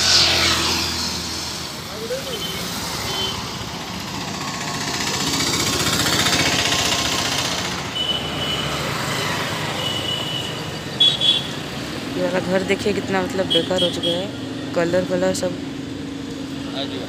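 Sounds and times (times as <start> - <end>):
road traffic passing: 0.0 - 17.0
motorcycle engine rattling: 3.6 - 8.0.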